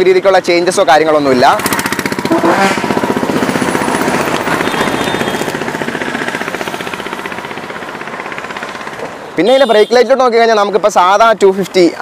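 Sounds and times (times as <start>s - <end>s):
motorcycle engine idling: 1.3s - 10.7s.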